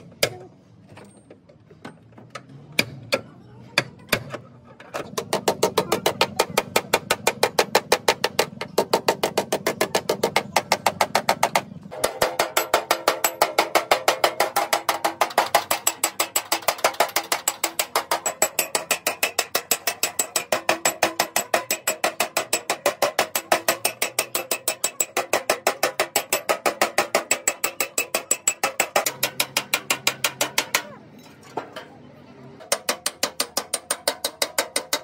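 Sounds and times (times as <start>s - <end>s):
hammer striking sheet metal: 9.2s - 31.0s, 32.7s - 35.0s.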